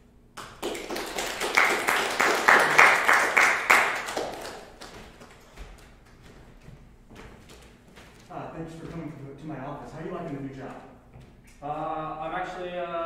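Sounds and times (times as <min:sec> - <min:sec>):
audience applauding: 0:00.4 - 0:05.9.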